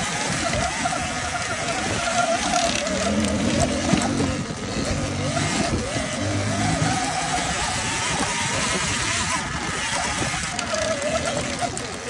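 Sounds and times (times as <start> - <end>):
dirt bike engine: 0.0 - 12.0.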